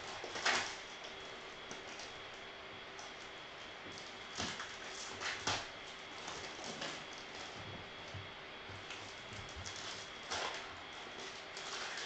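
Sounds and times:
foil wrapper crackling: 0:08.9 - 0:12.0.

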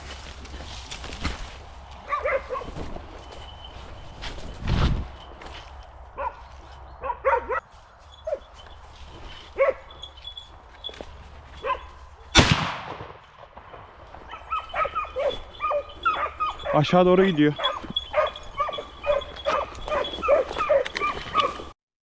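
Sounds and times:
hunting dogs barking and yelping: 0:01.8 - 0:12.4, 0:13.8 - 0:21.8
loud shotgun shot echoing: 0:12.3 - 0:13.8.

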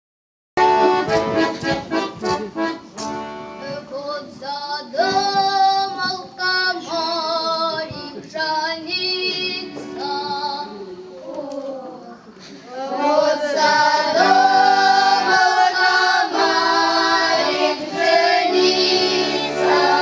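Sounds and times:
accordion chords: 0:00.6 - 0:04.3, 0:08.0 - 0:11.1, 0:12.9 - 0:20.0
children singing: 0:12.7 - 0:20.0.

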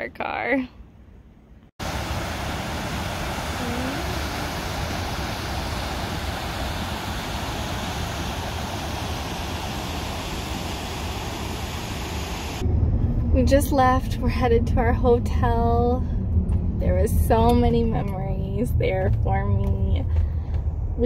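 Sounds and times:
water rushing over spillway rocks: 0:01.8 - 0:12.6.

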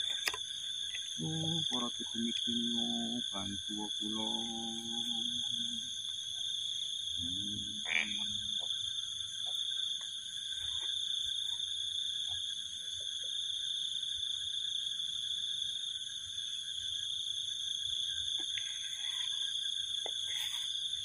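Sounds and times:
crickets and insects chirping: 0:00.0 - 0:21.0
faint short calls: 0:07.2 - 0:08.6.

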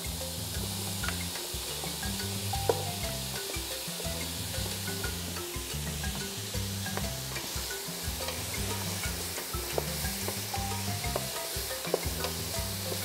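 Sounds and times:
background music with bass: 0:00.0 - 0:13.0
vegetables sizzling in butter: 0:00.0 - 0:13.0.

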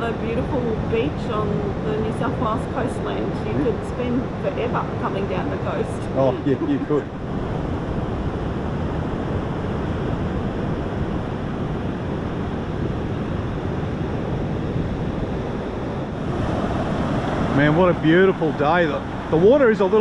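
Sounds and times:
wind on microphone: 0:00.0 - 0:20.0
ocean surf breaking on sand: 0:05.1 - 0:20.0.

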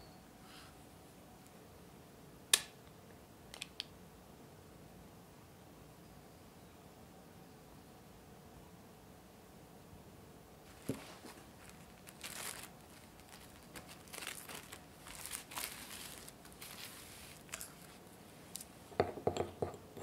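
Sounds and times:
plastic cling wrap crinkling: 0:10.7 - 0:18.8.

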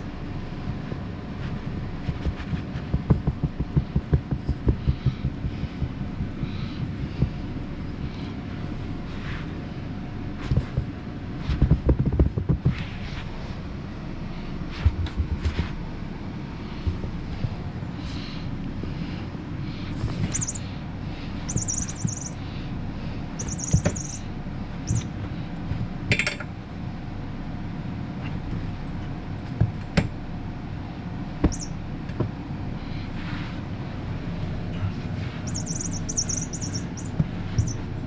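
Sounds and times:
steady low hum: 0:00.0 - 0:38.0
rubber toy squeaks: 0:20.3 - 0:20.6, 0:21.5 - 0:22.4, 0:23.4 - 0:24.2, 0:31.5 - 0:31.7, 0:35.5 - 0:37.8.

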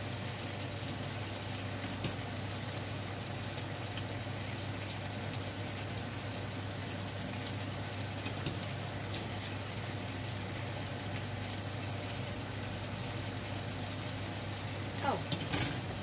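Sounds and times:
skewers sizzling in a frying pan: 0:00.0 - 0:16.0.

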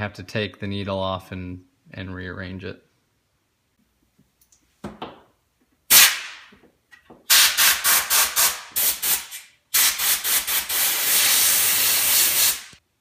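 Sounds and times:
compressed air blow gun blasts: 0:05.9 - 0:06.4, 0:07.3 - 0:12.8.

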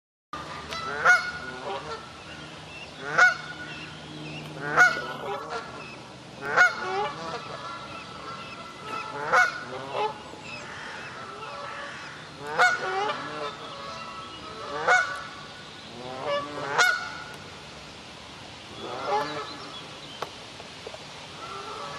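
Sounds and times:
goose honking: 0:00.7 - 0:02.0, 0:03.0 - 0:03.5, 0:04.6 - 0:05.8, 0:06.4 - 0:15.3, 0:16.0 - 0:17.2, 0:18.8 - 0:19.5.

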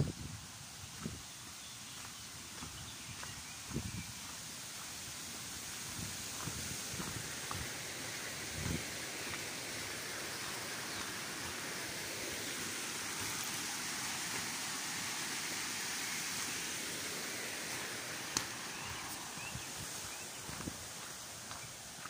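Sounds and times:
waterfall and stream rushing: 0:00.0 - 0:22.0
footsteps: 0:02.0 - 0:09.5, 0:18.2 - 0:22.0.

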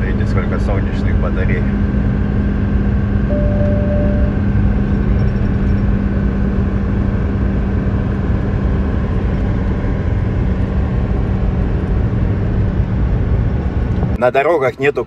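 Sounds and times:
constant low hum: 0:00.0 - 0:15.0
truck engine and road noise: 0:00.0 - 0:15.0
short steady beep: 0:03.3 - 0:04.4.

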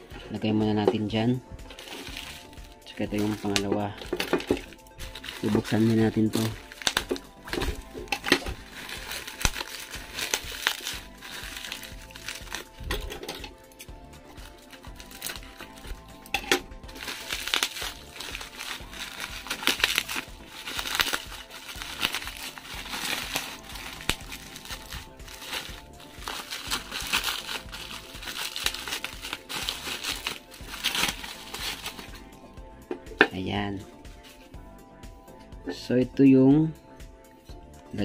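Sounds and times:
bubble wrap crinkling: 0:01.6 - 0:32.4
scissors cutting plastic: 0:03.1 - 0:32.2.

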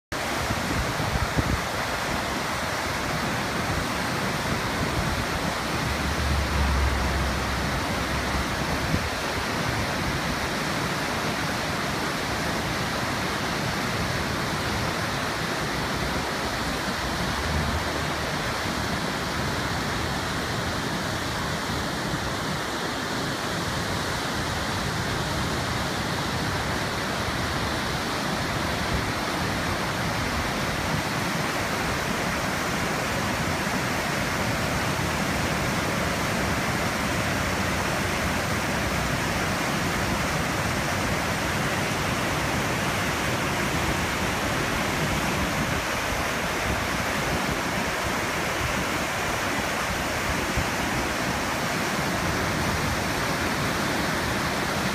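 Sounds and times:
whitewater rushing over boulders: 0:00.1 - 0:54.9.

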